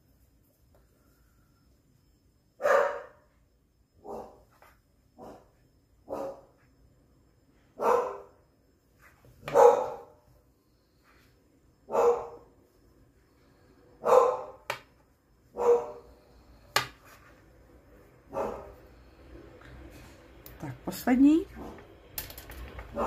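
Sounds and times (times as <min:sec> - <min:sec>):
dog barking: 0:02.6 - 0:03.2, 0:04.0 - 0:04.4, 0:05.2 - 0:05.4, 0:06.1 - 0:06.5, 0:07.8 - 0:08.3, 0:09.5 - 0:10.2, 0:11.9 - 0:12.4, 0:14.0 - 0:14.6, 0:15.5 - 0:16.0, 0:18.3 - 0:18.8.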